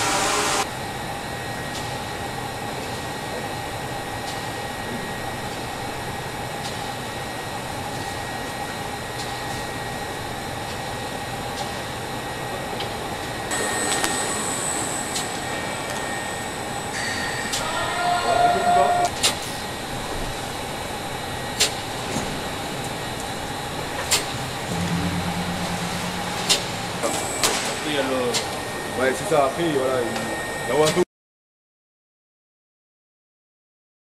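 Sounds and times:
machinery hum and ventilation air: 0.0s - 31.0s
faint whine: 24.6s - 28.8s.

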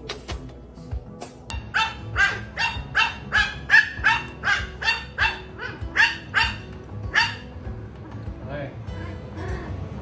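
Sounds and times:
small dog yapping: 1.5s - 7.5s.

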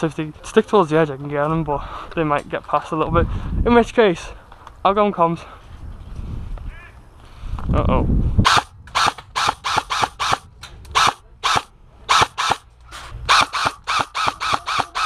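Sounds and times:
airsoft gunfire cracks: 8.5s - 12.7s, 13.3s - 15.0s.

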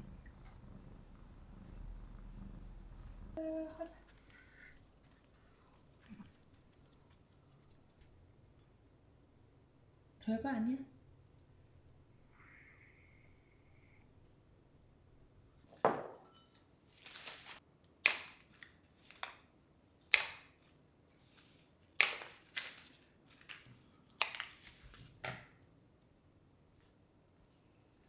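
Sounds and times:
wrapping paper crinkling: 16.9s - 17.6s, 21.2s - 23.7s.

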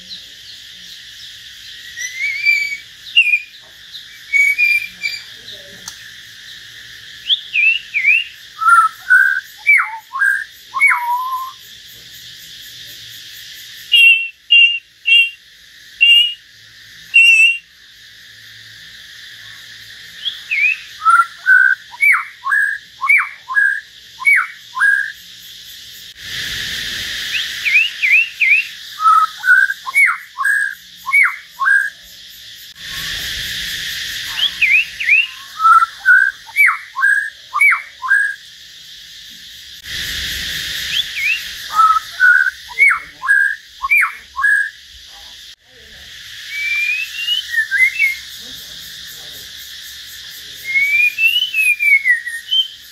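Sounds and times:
songbirds whistling: 0.0s - 11.7s, 13.8s - 15.4s, 16.0s - 17.7s, 20.0s - 25.3s, 26.2s - 32.1s, 32.7s - 38.4s, 39.9s - 44.8s, 46.4s - 48.5s, 50.6s - 52.9s
steady background hiss: 0.0s - 52.9s.

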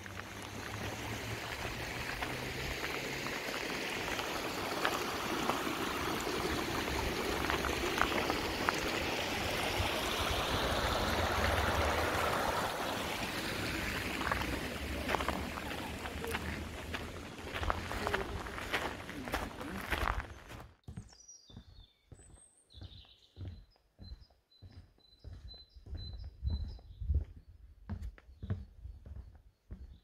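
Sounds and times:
brook splashing over stones: 0.0s - 20.5s
footsteps on gravel: 6.9s - 9.0s, 13.1s - 30.0s.

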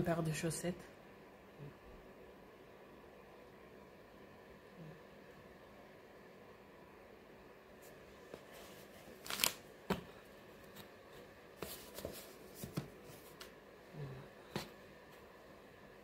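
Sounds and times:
light rustling of cardboard box: 10.7s - 13.5s.

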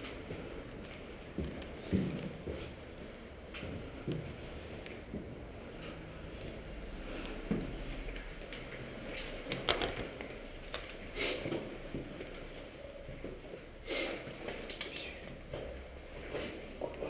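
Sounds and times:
footsteps on concrete stairs: 0.0s - 10.4s.

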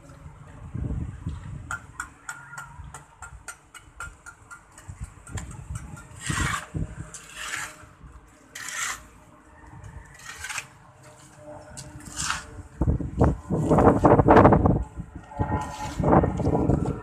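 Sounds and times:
trowel scraping block wall: 4.4s - 9.2s, 10.0s - 12.6s.

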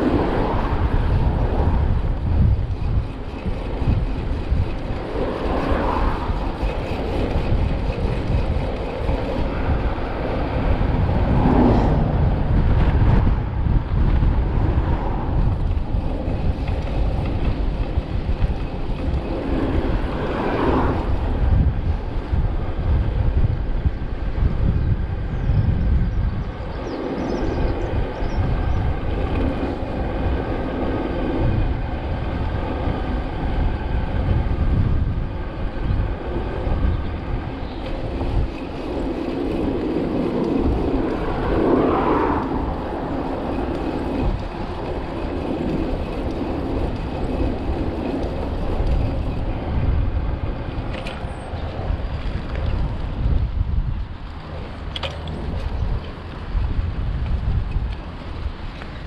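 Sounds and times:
bike tyres rolling on tarmac: 0.0s - 59.0s
wind buffeting microphone: 0.0s - 59.0s.

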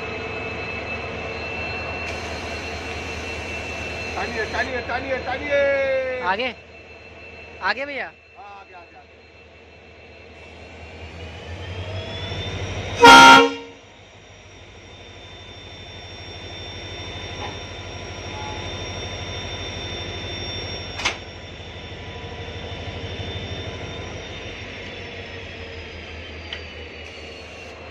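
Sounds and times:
locomotive hum and whine: 0.0s - 27.9s
locomotive horn toot: 13.0s - 13.8s, 18.3s - 18.7s.

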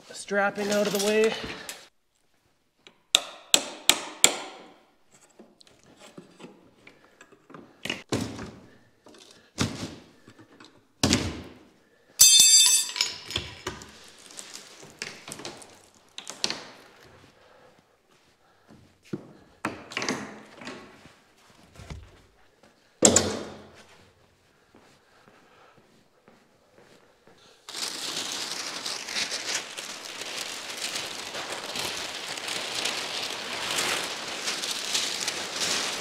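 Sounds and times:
rustling: 13.8s - 17.3s, 27.7s - 36.0s.

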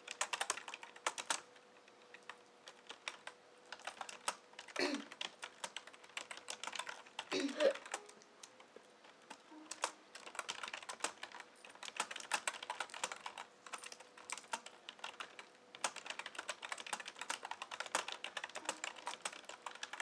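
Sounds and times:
computer keyboard typing: 0.0s - 20.0s.

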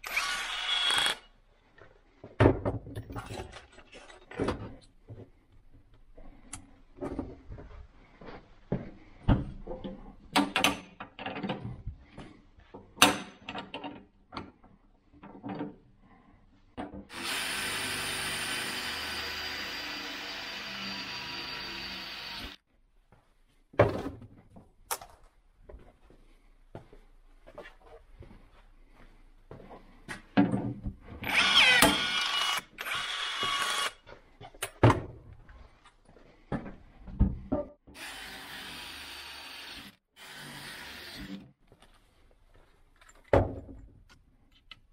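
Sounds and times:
cordless drill whining: 0.0s - 1.2s, 17.1s - 22.6s, 31.2s - 34.0s, 38.0s - 41.4s.

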